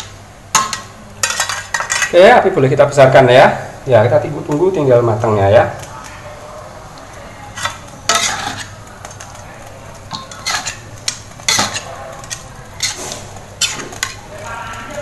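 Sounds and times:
steady sizzle: 0.0s - 15.0s
metal spatula scraping pan: 7.5s - 8.8s, 10.1s - 10.9s, 11.5s - 14.2s.

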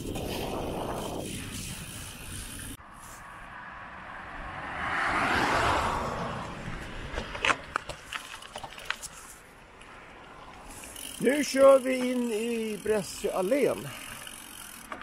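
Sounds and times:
car passing by: 2.8s - 7.6s
sharp clicks and rattles: 10.9s - 15.0s.

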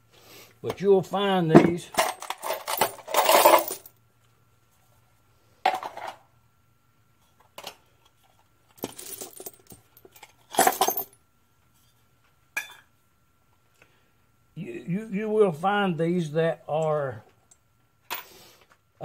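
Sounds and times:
small metal parts clattering: 1.5s - 3.9s, 7.6s - 11.2s.

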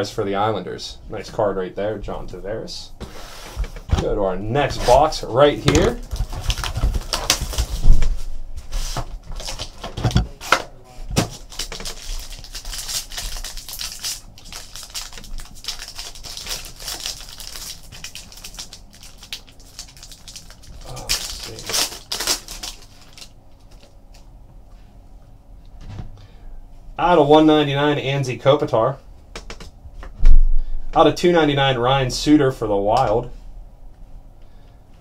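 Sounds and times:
foil and cardboard crinkling: 5.8s - 10.2s, 11.1s - 24.2s.

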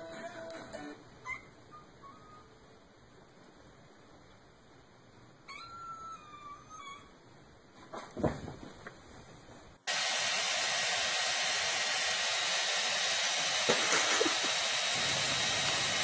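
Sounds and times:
loud static-like hiss: 7.2s - 16.0s.

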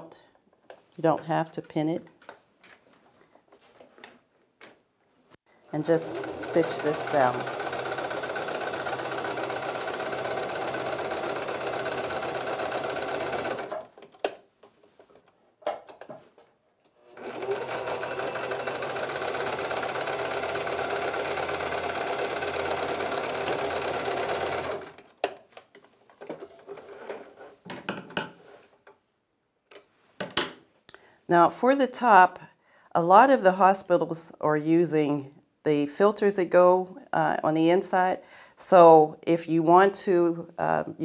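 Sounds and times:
sewing machine stitching: 5.8s - 14.0s, 17.0s - 25.1s.

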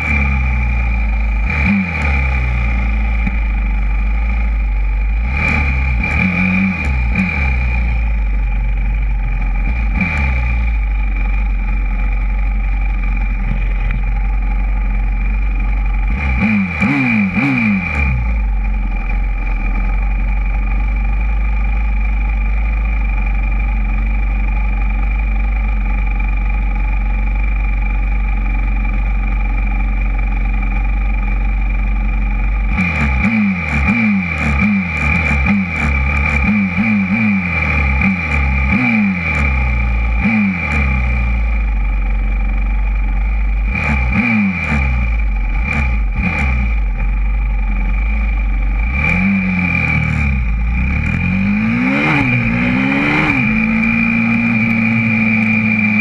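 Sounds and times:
motorbike engine idling: 0.0s - 56.0s.

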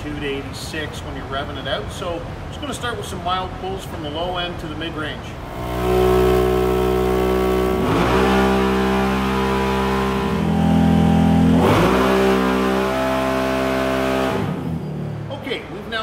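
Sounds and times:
engine at high revs: 5.4s - 15.0s.

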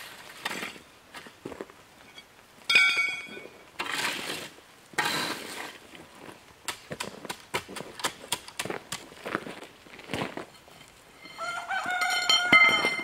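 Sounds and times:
rake scraping through gravel: 3.8s - 6.4s
rake clanking: 10.3s - 13.0s.

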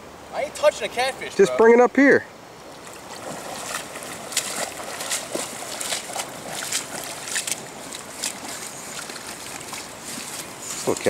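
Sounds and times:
fish splashing in shallow water: 2.6s - 11.0s
rubber boots stepping through water: 2.7s - 11.0s.

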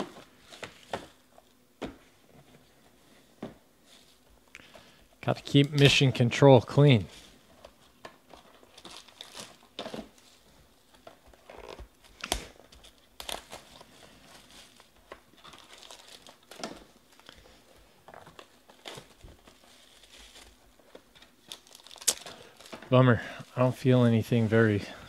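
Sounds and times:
plastic wrap crinkling and tearing: 6.7s - 24.8s.

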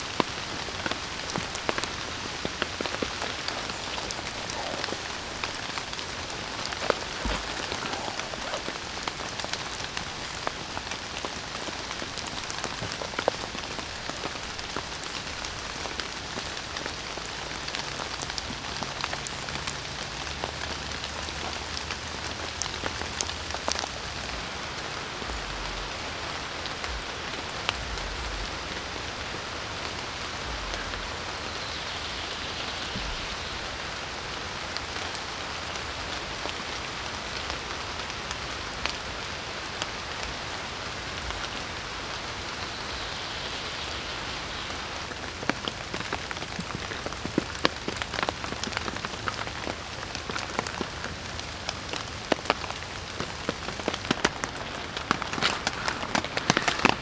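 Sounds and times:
steady rain in woodland: 0.0s - 57.0s.

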